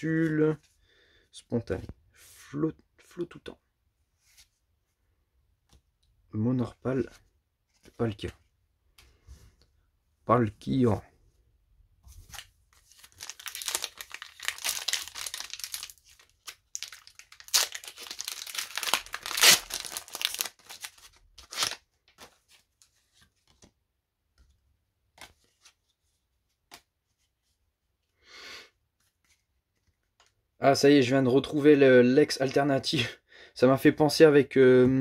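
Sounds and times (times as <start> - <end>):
foil wrapper crinkling and tearing: 12.9 - 22.2.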